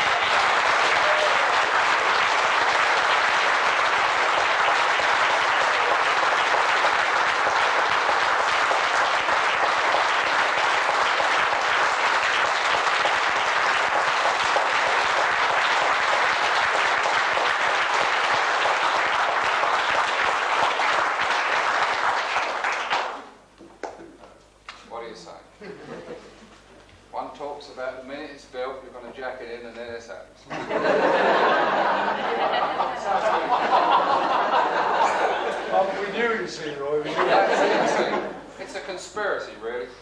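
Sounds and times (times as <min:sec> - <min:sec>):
audience applauding: 0:00.0 - 0:24.1, 0:30.6 - 0:36.4.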